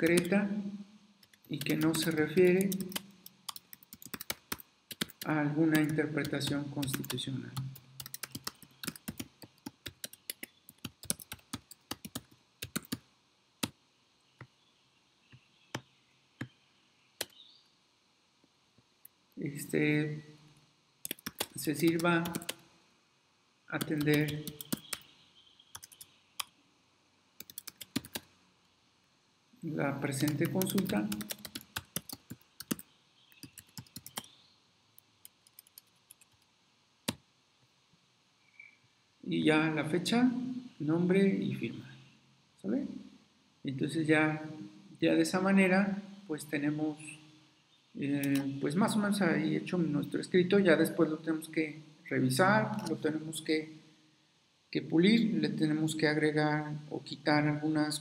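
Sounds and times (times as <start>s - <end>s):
typing on computer keyboard: 1.2s - 2.1s, 2.7s - 7.2s, 8.0s - 13.0s, 21.0s - 22.6s, 23.8s - 25.0s, 25.8s - 26.1s, 27.4s - 28.3s, 30.1s - 32.8s, 33.4s - 34.3s, 35.3s - 36.5s.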